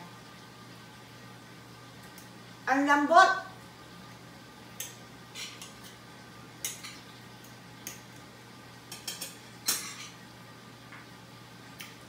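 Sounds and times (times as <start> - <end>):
knife and fork scraping a plate: 5.4 - 6.0.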